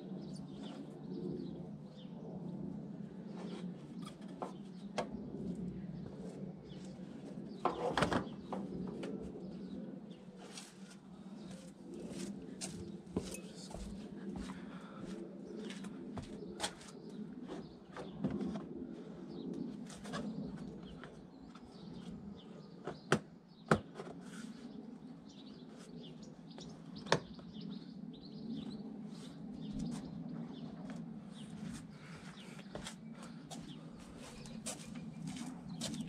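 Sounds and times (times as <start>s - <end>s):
birds chirping: 24.7s - 36.0s.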